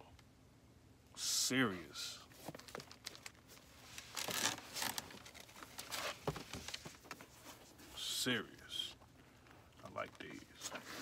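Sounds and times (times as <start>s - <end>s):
paper packaging crinkling: 2.3s - 7.4s.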